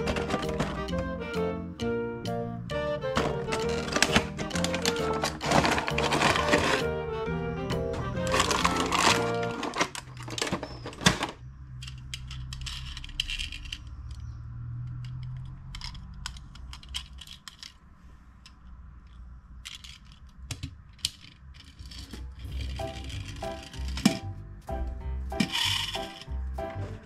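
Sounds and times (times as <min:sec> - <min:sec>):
metal toy cars clicking: 0:00.0 - 0:01.1, 0:03.2 - 0:06.8, 0:08.2 - 0:24.2, 0:25.4 - 0:26.4
plastic tray crackling: 0:00.0 - 0:01.1, 0:03.1 - 0:06.9, 0:08.2 - 0:11.4.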